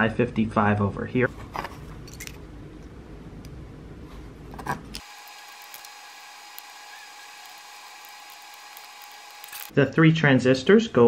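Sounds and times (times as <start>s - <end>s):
circuit board handling noise: 4.5s - 9.7s
high electrical whine: 5.0s - 9.8s.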